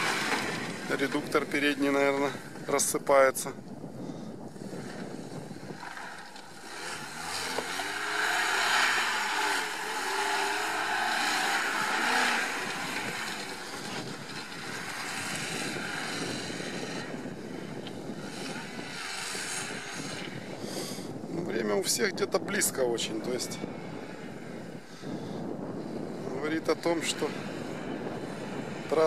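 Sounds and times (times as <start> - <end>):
car engine revving: 0.0 - 2.1, 5.7 - 21.0
rumbling at front of car: 0.0 - 29.0.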